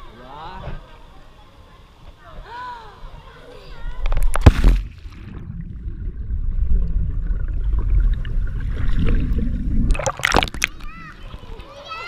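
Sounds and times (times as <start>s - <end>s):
splash into pool: 4.3s - 5.5s
muffled underwater rumble and bubbles: 5.2s - 10.1s.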